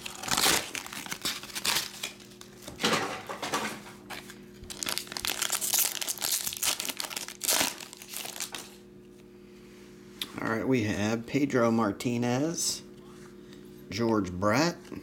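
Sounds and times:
foil wrapper crinkling and tearing: 0.0 - 2.7, 4.1 - 8.8.

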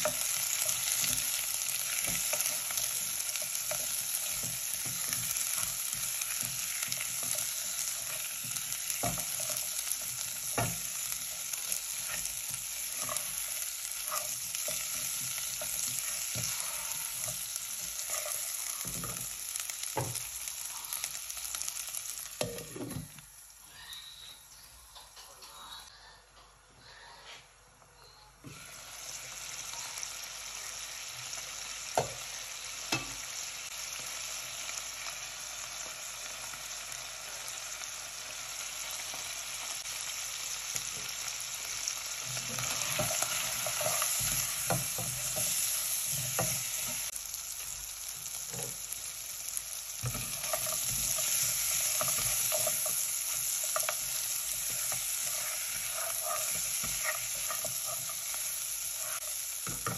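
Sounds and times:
meat sizzling in oil: 0.0 - 23.6, 28.5 - 59.9
spatula scraping and knocking pot: 50.0 - 59.9.

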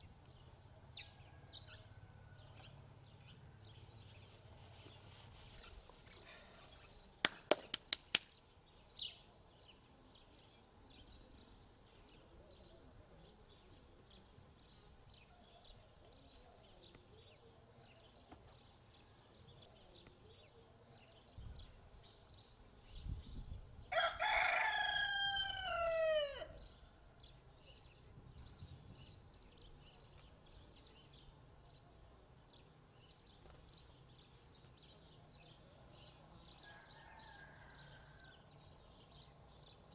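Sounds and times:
rooster crowing: 23.9 - 26.6, 36.6 - 38.4.

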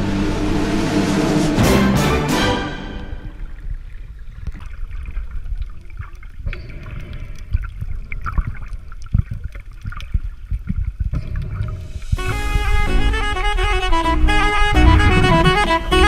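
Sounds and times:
bubbling: 3.0 - 13.3
muffled underwater rumble: 3.2 - 16.0
underwater knocks and clicks: 3.6 - 12.2.

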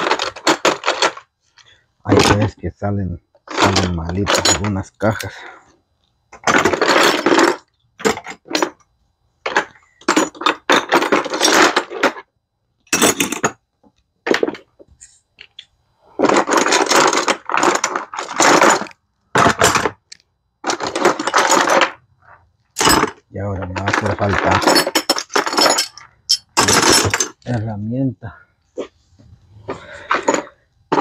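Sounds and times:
metal tools clattering: 3.5 - 5.4, 9.5 - 12.2, 12.9 - 13.6, 22.8 - 27.6.

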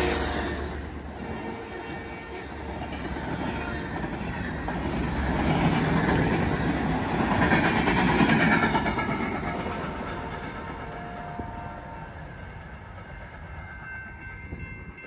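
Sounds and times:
train wheels clattering on rails: 1.2 - 15.0.

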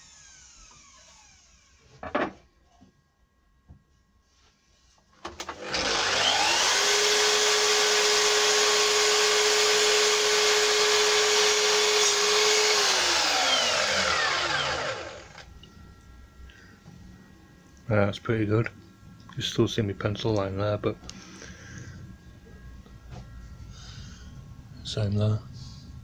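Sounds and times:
mitre saw whining: 0.0 - 2.0, 5.4 - 15.6.

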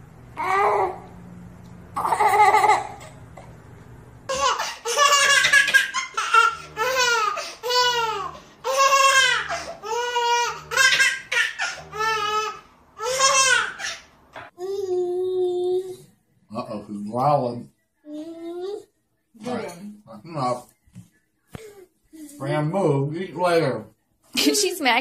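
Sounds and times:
baby belly laughing: 2.0 - 3.2, 4.3 - 14.0.

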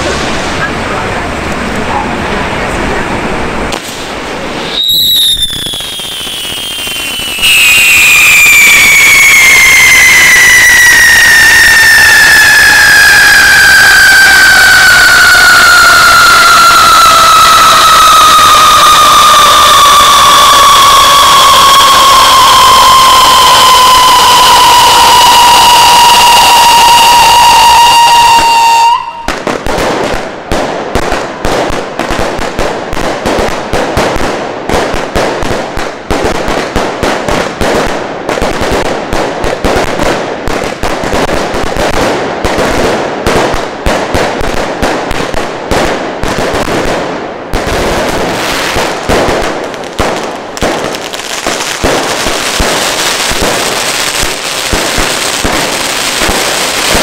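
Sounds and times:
fountain fireworks hissing: 0.0 - 30.0, 47.9 - 57.0
firework whistle: 3.7 - 29.4, 50.0 - 57.0
firecrackers rattling bangs: 20.7 - 57.0.

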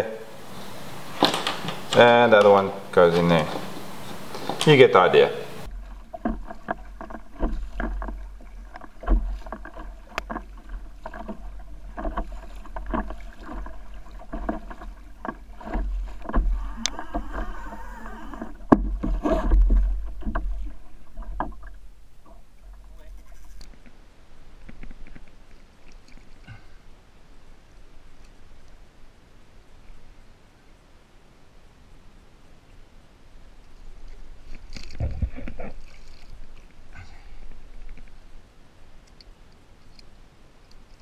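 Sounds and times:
kayak paddle splashing: 0.2 - 30.1, 33.3 - 41.0
low rumble: 5.6 - 23.7.

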